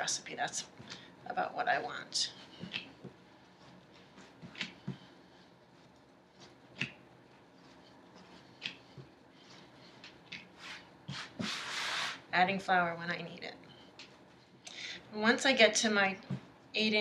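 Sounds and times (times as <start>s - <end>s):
hands rolling dough: 0.7s - 12.3s
hand brushing flour swish: 7.4s - 12.3s.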